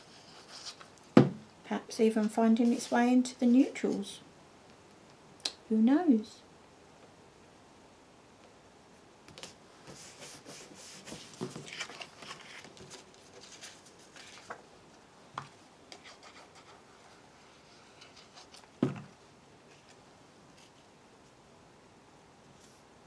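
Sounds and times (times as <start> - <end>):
cardstock rustling and sliding: 9.9 - 14.6.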